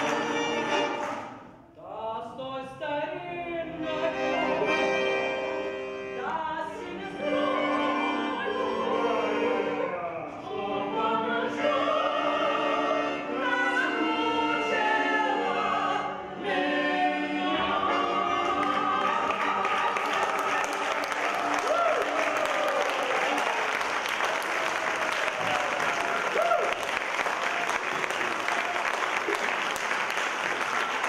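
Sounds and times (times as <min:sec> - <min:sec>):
man singing: 0:01.8 - 0:04.5
button accordion: 0:03.8 - 0:09.8, 0:14.9 - 0:19.8.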